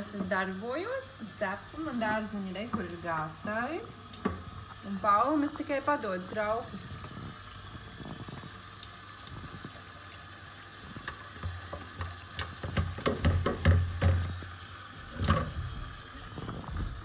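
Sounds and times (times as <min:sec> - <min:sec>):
tap water running into pan: 0:00.0 - 0:17.0
pan knocking against sink: 0:11.5 - 0:14.4, 0:15.2 - 0:15.7.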